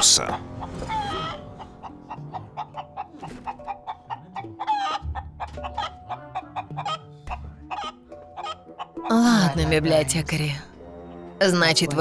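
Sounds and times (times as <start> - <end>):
light background music: 0.0 - 12.0
man clucking like a chicken: 1.2 - 9.1.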